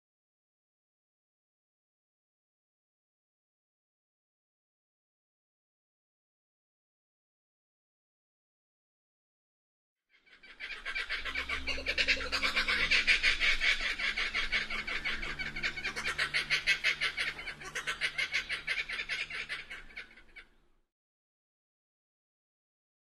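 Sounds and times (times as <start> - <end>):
kookaburra laughing call: 10.3 - 20.5.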